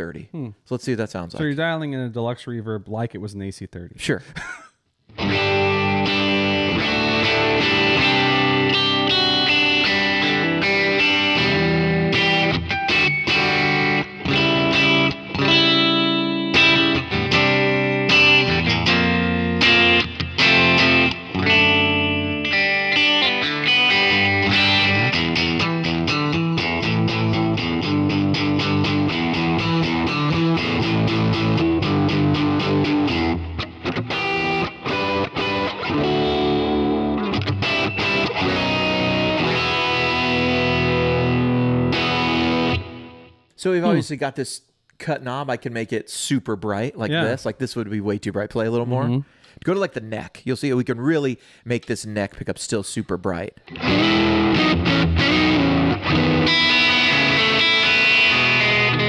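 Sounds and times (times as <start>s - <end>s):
electric guitar chords: 5.1s - 44.0s, 53.6s - 59.0s.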